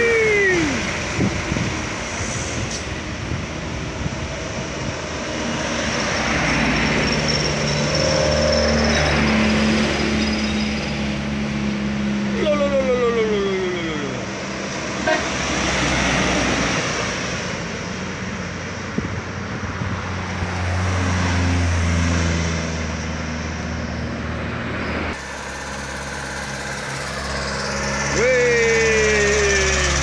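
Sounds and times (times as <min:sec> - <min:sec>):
diesel trucks climbing: 0:00.0 - 0:30.0
road noise: 0:00.0 - 0:30.0
falling tone: 0:25.1 - 0:30.0.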